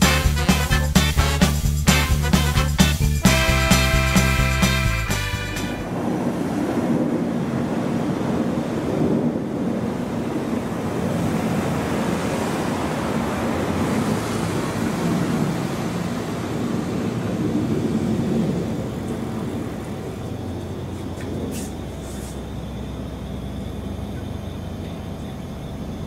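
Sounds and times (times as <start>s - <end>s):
jets flying over: 0.0s - 26.0s.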